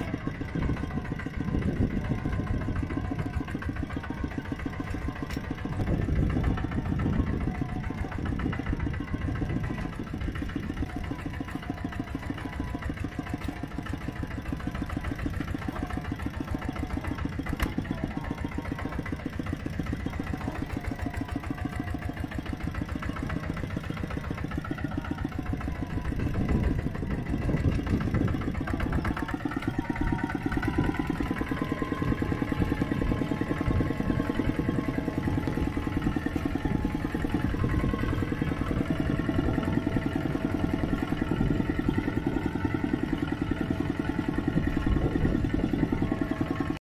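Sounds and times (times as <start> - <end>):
mini tractor engines running: 0.0 - 46.8.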